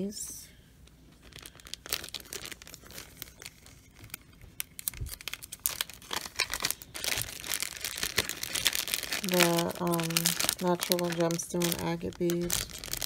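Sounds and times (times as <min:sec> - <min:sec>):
plastic bag crinkling: 0:00.8 - 0:13.0.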